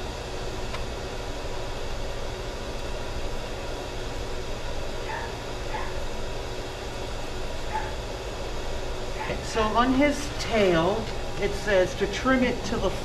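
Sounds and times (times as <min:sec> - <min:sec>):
steady background noise: 0:00.0 - 0:13.0
dog yipping faintly: 0:05.1 - 0:06.0, 0:07.7 - 0:08.0.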